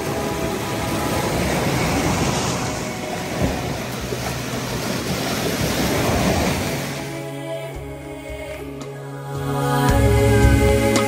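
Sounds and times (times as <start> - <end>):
waves washing over rocky shore: 0.0 - 7.2
wind: 0.0 - 11.0.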